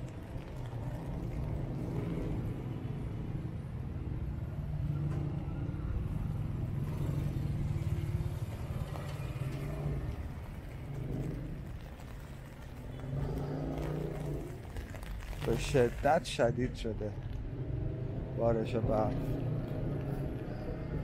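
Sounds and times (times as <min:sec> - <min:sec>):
car engines in traffic: 0:00.0 - 0:21.0
heavy rain on street: 0:06.9 - 0:16.4.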